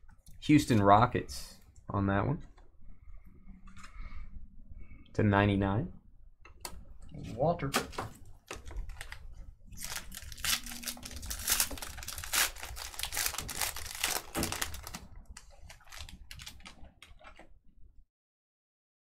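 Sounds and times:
card packaging crinkling and tearing: 0:07.8 - 0:17.4.

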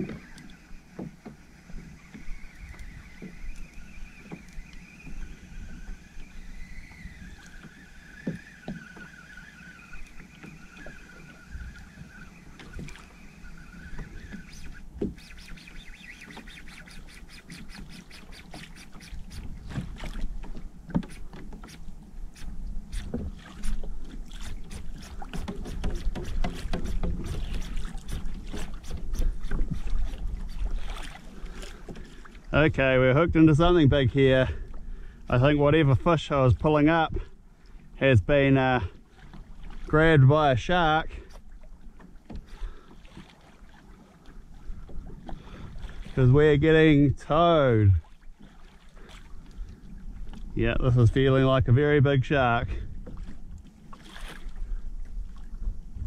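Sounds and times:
faint wavering whistle: 0:00.0 - 0:19.5
fishing reel clicking: 0:00.0 - 0:19.5
water washing against hull: 0:00.0 - 0:56.0.

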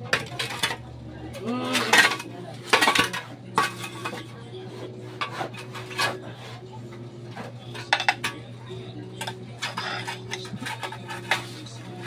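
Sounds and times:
shovel scraping on concrete: 0:01.6 - 0:06.6, 0:09.6 - 0:12.0.

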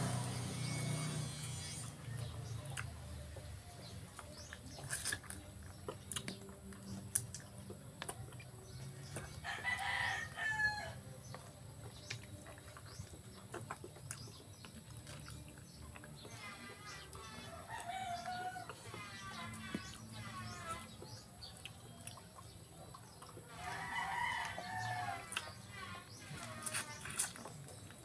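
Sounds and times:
person chewing: 0:01.3 - 0:09.4, 0:11.0 - 0:28.0
rooster crowing: 0:09.4 - 0:11.0, 0:23.6 - 0:25.4.

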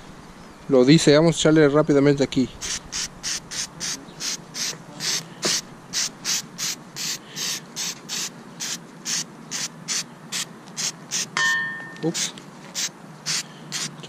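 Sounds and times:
aerosol can spraying hiss: 0:02.6 - 0:11.3, 0:12.2 - 0:14.0.

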